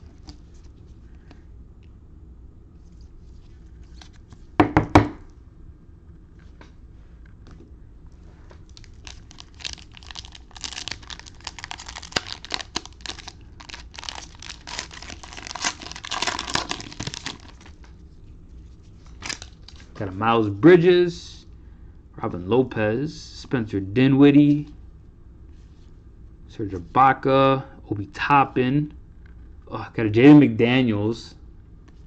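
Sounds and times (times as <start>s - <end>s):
cellophane wrapper crinkling: 8.6s - 20.2s.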